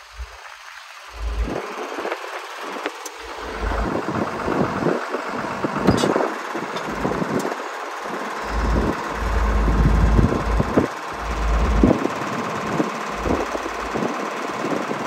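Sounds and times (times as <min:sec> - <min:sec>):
mechanical running noise: 0:00.0 - 0:15.0
wind buffeting microphone: 0:08.5 - 0:14.1.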